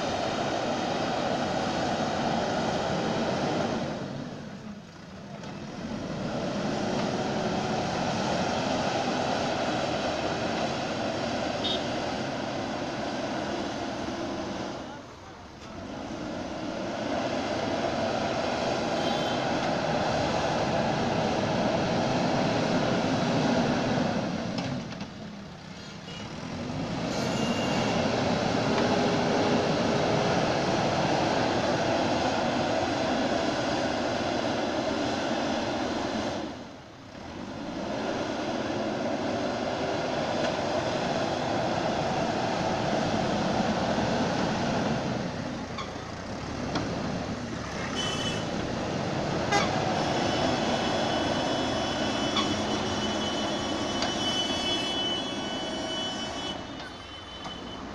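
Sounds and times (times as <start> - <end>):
diesel engine under load: 0.0 - 57.9.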